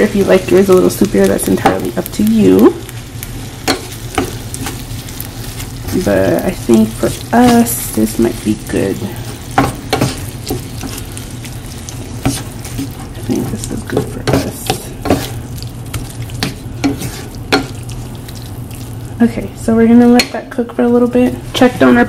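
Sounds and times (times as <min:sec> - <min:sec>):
food sizzling in frying pan: 0:00.0 - 0:22.0
wooden spatula scraping pan: 0:11.9 - 0:18.2.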